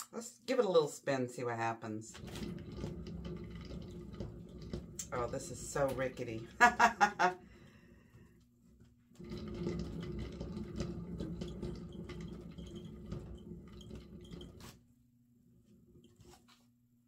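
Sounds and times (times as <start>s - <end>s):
spinner rattling and clattering: 2.1s - 7.6s, 9.1s - 14.8s.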